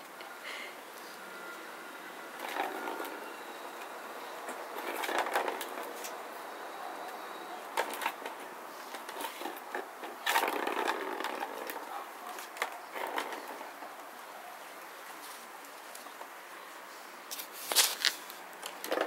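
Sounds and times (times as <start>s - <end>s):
plastic ball rolling on track: 2.3s - 6.3s, 7.0s - 13.9s, 18.6s - 19.0s.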